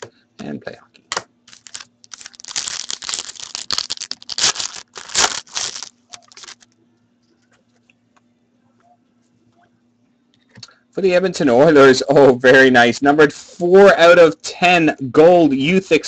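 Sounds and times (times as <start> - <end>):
foil wrapper tearing and crinkling: 1.5 - 6.7.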